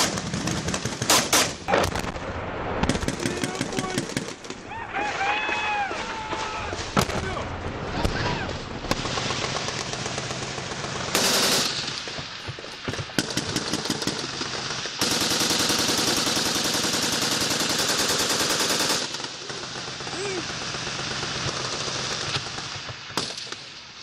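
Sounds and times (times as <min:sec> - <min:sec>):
machine-gun fire: 0:00.0 - 0:02.2, 0:02.8 - 0:04.6, 0:08.8 - 0:12.1, 0:13.1 - 0:23.6.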